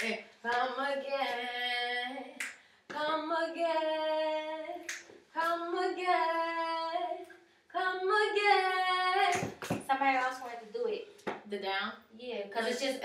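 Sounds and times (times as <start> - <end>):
woman singing a cappella: 0.0 - 10.3.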